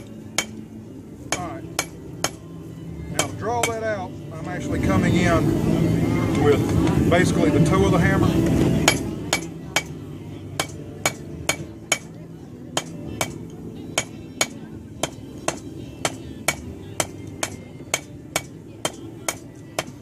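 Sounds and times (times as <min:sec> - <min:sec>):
hammer striking steel on anvil: 0:00.0 - 0:00.6, 0:01.3 - 0:02.4, 0:03.2 - 0:03.8, 0:08.8 - 0:12.2, 0:12.8 - 0:20.0.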